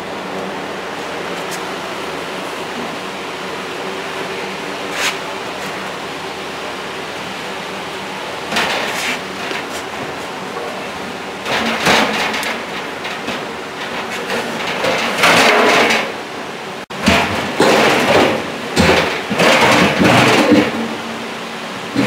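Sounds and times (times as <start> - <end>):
metal drum scraping and knocking: 8.5 - 16.2, 16.9 - 21.2.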